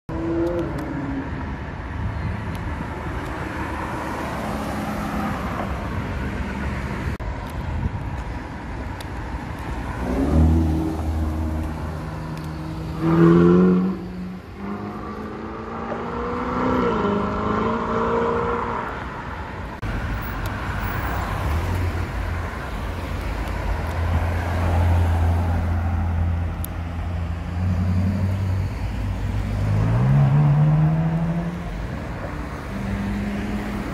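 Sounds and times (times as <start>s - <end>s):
steady traffic noise: 0.1s - 33.9s
sports car engines accelerating past: 10.0s - 19.1s, 29.3s - 33.9s.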